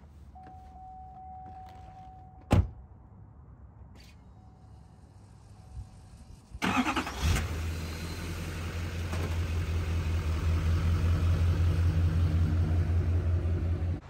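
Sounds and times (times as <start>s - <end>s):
pickup engine starting and idling: 5.2s - 14.0s.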